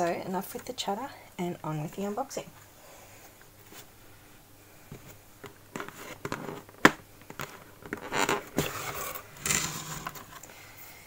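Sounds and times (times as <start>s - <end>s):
cardboard scraping and rustling: 5.7s - 10.4s.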